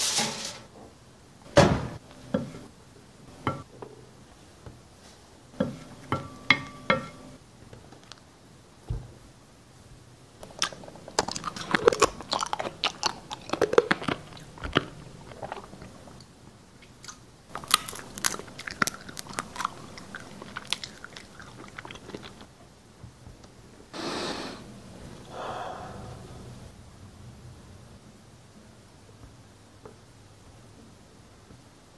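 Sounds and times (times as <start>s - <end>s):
crunchy chewing and biting: 10.4s - 16.0s, 17.0s - 22.5s
breathy noise: 23.9s - 26.7s.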